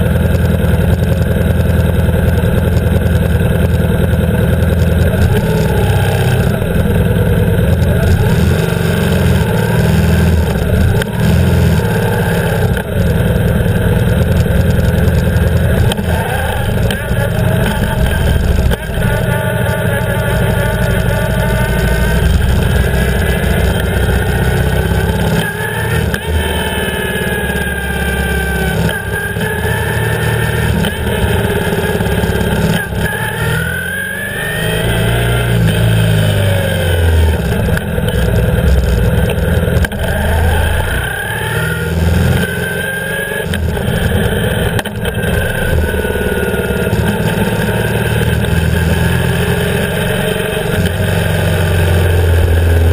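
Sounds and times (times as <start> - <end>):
motorcycle engine running: 0.0 - 52.9.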